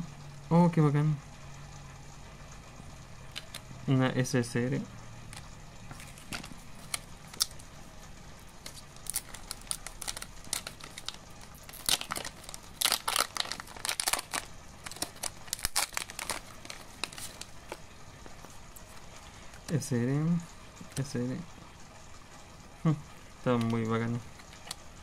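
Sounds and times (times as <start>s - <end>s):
plastic pack tearing and crinkling: 5.9s - 7.7s, 8.6s - 17.8s.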